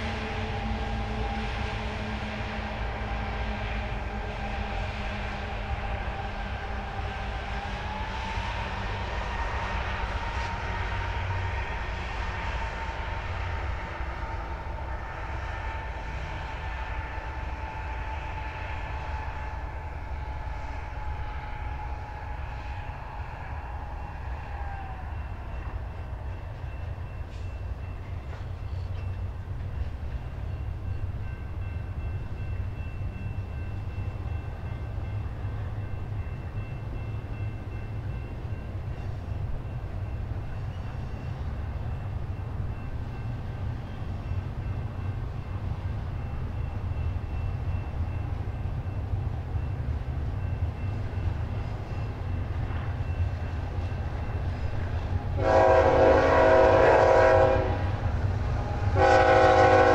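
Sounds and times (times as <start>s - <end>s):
freight train rumbling: 0.0s - 59.9s
locomotive air horn: 7.7s - 24.5s, 55.3s - 59.9s.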